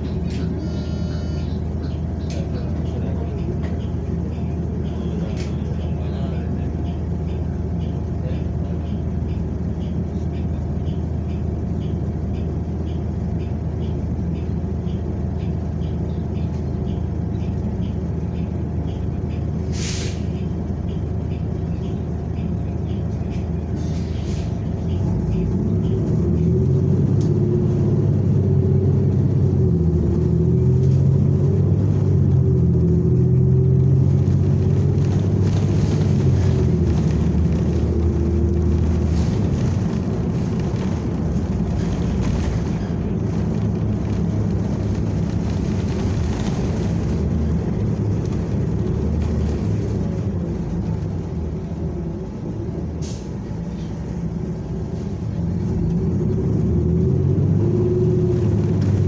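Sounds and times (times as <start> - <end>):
bus engine drone: 0.0 - 59.0
air hiss: 19.7 - 20.3.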